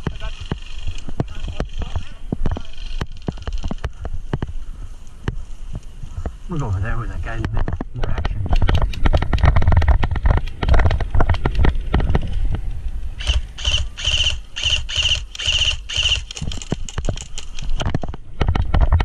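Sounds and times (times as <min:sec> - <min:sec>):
low wind rumble on microphone: 0:00.0 - 0:14.6, 0:16.2 - 0:19.0
footsteps on dirt track: 0:00.0 - 0:19.0
airsoft rifle firing rapid shots: 0:13.2 - 0:16.6.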